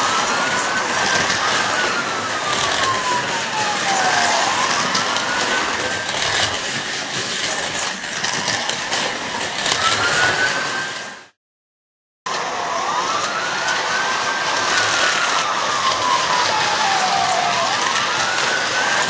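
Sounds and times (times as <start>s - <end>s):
wailing siren: 0.0s - 7.0s, 8.3s - 11.4s, 12.3s - 19.0s
scattered clicks: 2.5s - 3.0s.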